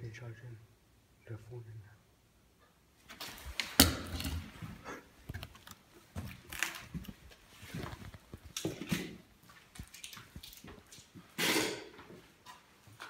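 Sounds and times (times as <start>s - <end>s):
rustling handling noise: 3.0s - 11.3s
footsteps on debris: 3.1s - 11.3s.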